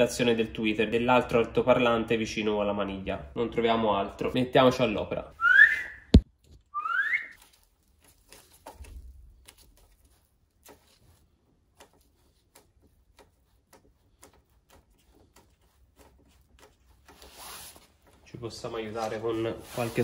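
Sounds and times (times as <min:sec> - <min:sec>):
plastic sheet peeling crackles: 0:07.2 - 0:20.0
plastic rustle: 0:07.3 - 0:20.0.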